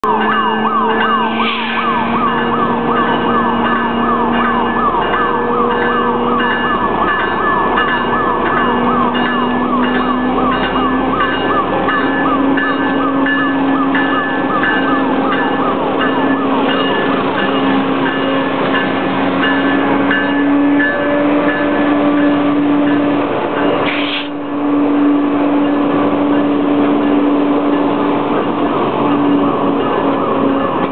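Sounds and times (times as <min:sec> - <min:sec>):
locomotive engine running: 0:00.0 - 0:30.9
sweeping siren-like warning tone: 0:00.0 - 0:30.9.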